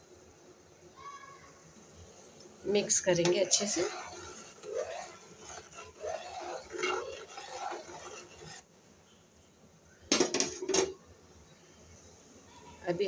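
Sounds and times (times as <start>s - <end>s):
metal spoon scraping a pot: 2.8s - 8.6s.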